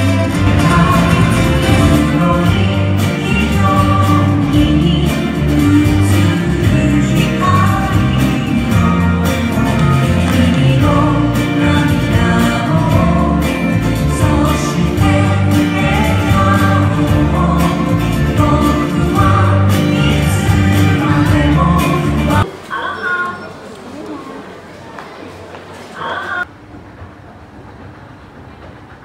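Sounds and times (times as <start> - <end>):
song with singing voice: 0.0 - 22.8.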